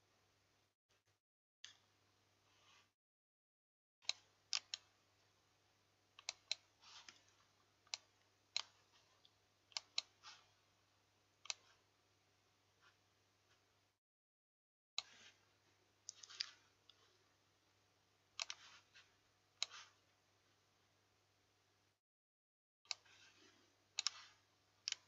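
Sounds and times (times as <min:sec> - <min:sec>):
computer mouse clicking: 0:04.0 - 0:04.9, 0:06.2 - 0:10.4, 0:11.4 - 0:11.8, 0:16.1 - 0:17.0, 0:18.4 - 0:19.0, 0:19.6 - 0:20.0, 0:22.9 - 0:23.4, 0:24.0 - 0:25.0.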